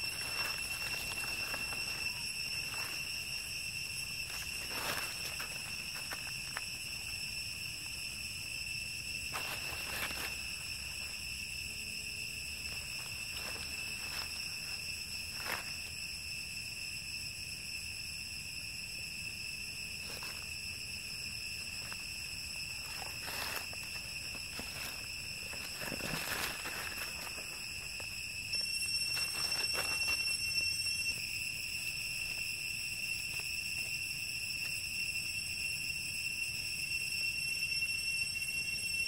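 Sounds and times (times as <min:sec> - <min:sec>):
dry leaves rustling: 0:00.0 - 0:07.7, 0:09.3 - 0:11.3, 0:12.5 - 0:16.0, 0:20.0 - 0:31.1
insects droning: 0:00.0 - 0:39.0.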